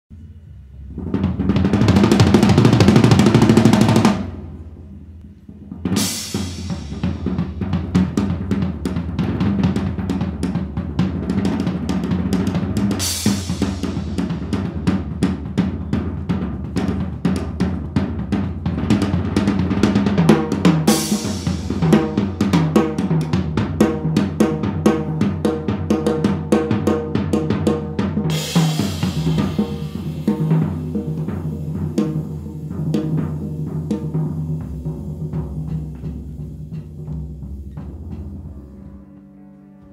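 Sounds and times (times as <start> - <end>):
bass notes: 0.1 - 39.9
drum kit playing: 0.6 - 39.4
cymbal crash: 5.8 - 8.0, 13.0 - 15.1, 20.9 - 22.5, 28.3 - 34.0.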